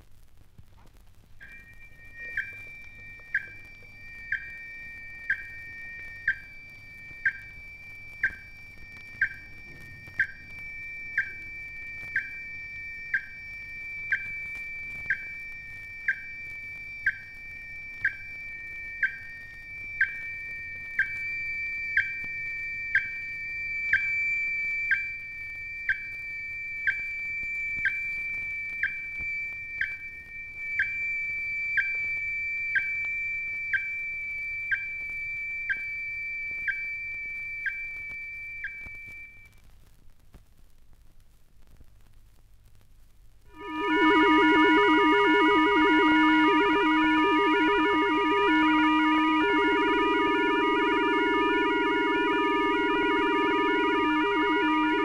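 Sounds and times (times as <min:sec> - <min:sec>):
steady high electronic tone: 0:01.4 - 0:22.1, 0:43.5 - 0:55.0.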